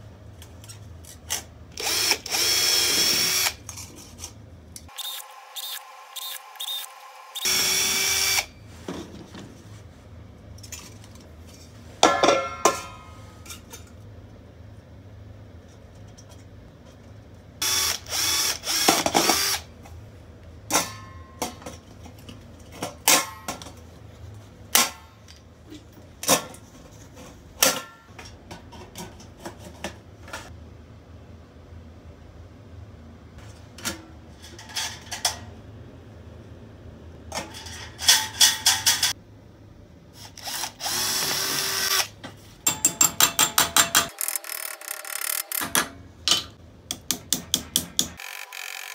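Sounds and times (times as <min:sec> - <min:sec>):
cordless drill drilling metal: 0:01.8 - 0:03.6, 0:04.9 - 0:08.5, 0:17.6 - 0:19.6, 0:40.4 - 0:42.1, 0:48.2 - 0:48.9.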